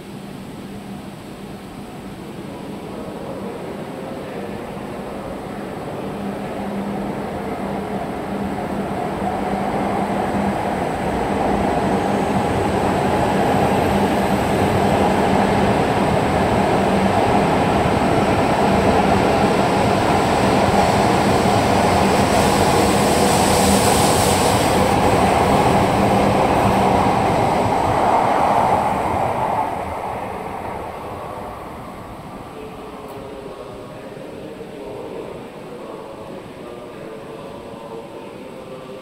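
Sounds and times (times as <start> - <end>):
train rumbling past: 0.0 - 39.0
bright hiss: 22.2 - 26.4.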